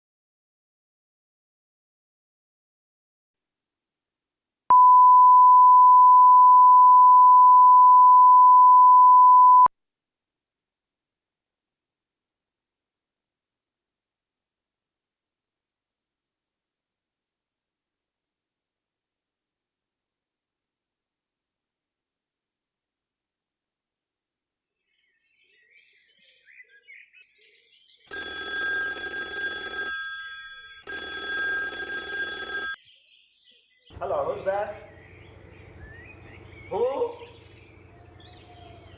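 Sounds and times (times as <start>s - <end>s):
steady test tone: 4.7s - 9.7s
rotary telephone ringing: 28.1s - 32.8s
faint bird chirping: 34.8s - 38.9s.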